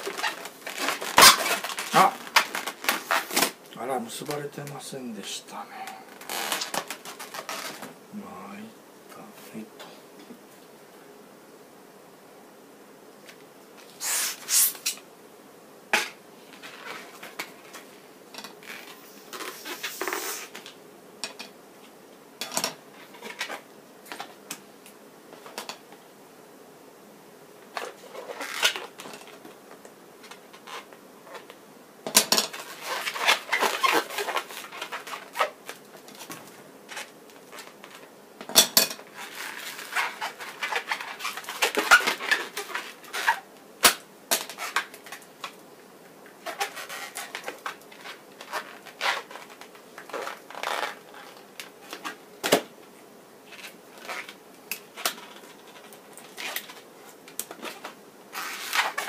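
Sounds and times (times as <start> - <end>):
balloons rubbing and squeaking: 0.0 - 3.6, 5.8 - 7.9, 13.9 - 15.0, 16.6 - 17.8, 18.6 - 20.6, 27.8 - 29.0, 30.5 - 31.5, 32.5 - 36.3, 39.1 - 43.5, 44.5 - 44.9, 46.4 - 52.1, 53.5 - 54.4, 57.6 - 59.0.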